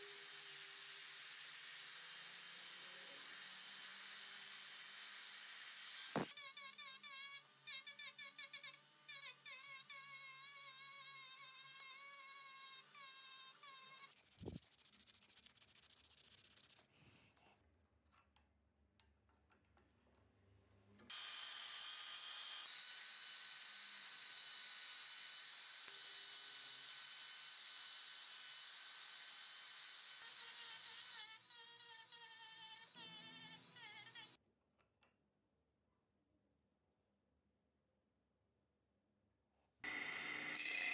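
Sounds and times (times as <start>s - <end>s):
rotary tool sanding: 0.1s - 16.9s
abrasive rubbed by hand: 14.0s - 17.0s.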